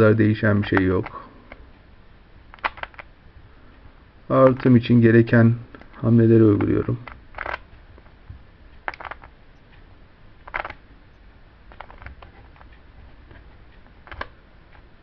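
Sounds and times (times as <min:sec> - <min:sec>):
faint room hiss: 0:00.0 - 0:15.0
puzzle cube clicking and rattling: 0:02.5 - 0:03.1, 0:05.8 - 0:08.1, 0:08.8 - 0:09.4, 0:10.4 - 0:10.8, 0:11.7 - 0:14.4.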